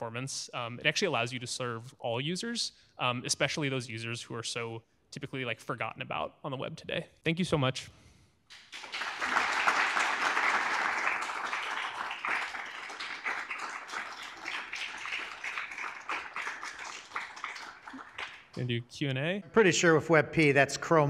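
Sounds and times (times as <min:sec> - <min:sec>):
audience applauding: 0:08.5 - 0:18.6.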